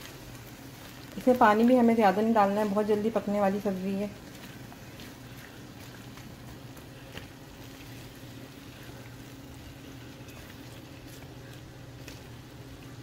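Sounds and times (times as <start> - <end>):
food sizzling in a pan: 0.0 - 5.8, 6.9 - 11.4
spatula stirring: 0.0 - 13.0
steady low hum: 0.0 - 13.0.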